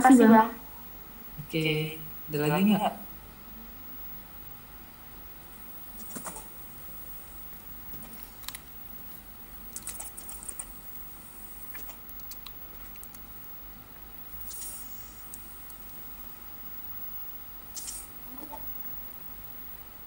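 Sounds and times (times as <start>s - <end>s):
computer keyboard typing: 11.7s - 13.3s.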